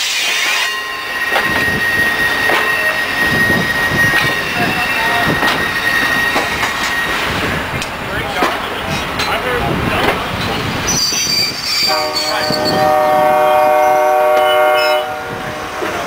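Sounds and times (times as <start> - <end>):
train wheels squealing: 0.0 - 7.7, 10.4 - 13.0
low train rumble: 0.0 - 16.0.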